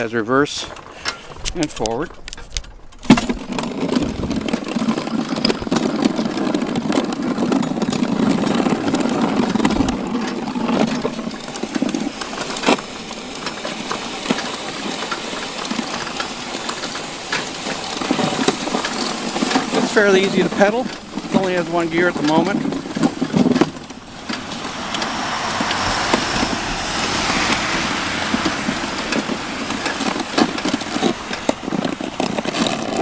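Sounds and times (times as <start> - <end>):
plow blade scraping snow: 13.7 - 33.0.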